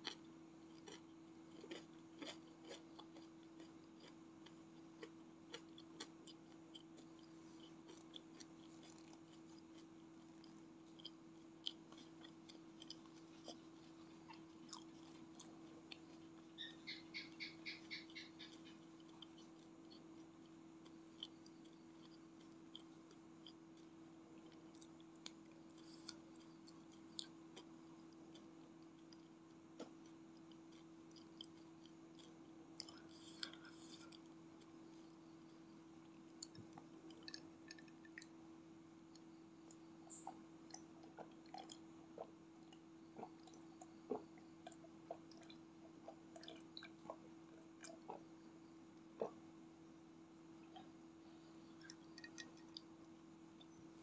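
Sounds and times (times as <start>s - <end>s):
chewing fried snacks: 0.0s - 38.4s, 39.0s - 49.4s, 50.5s - 54.0s
clicks drinking from glass: 51.8s - 52.9s.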